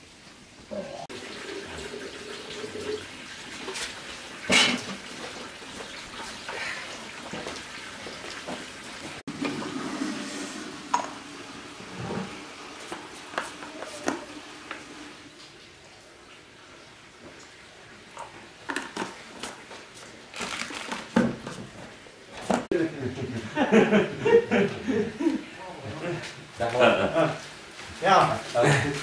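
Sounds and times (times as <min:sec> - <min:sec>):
water running and splashing: 0:00.0 - 0:22.6.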